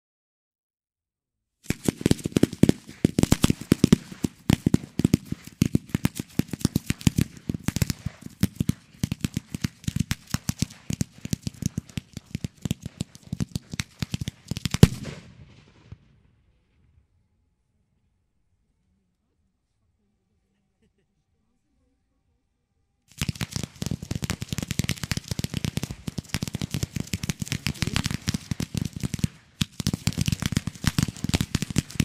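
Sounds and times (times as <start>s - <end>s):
firework crackle: 1.6s - 16.1s, 23.1s - 32.0s
fireworks shots and bangs: 1.6s - 16.2s, 23.1s - 32.0s.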